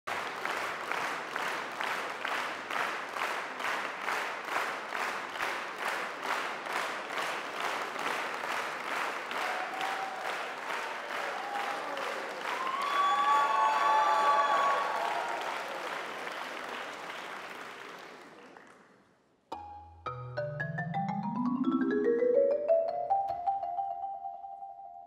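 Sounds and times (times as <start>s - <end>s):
audience applauding: 0.1s - 19.1s.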